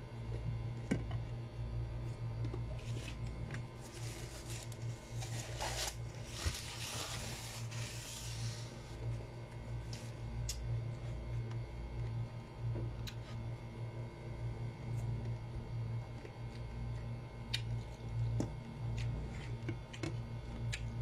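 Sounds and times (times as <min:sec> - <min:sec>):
steady low hum: 0:00.0 - 0:21.0
tissue rustling and crumpling: 0:03.8 - 0:08.8.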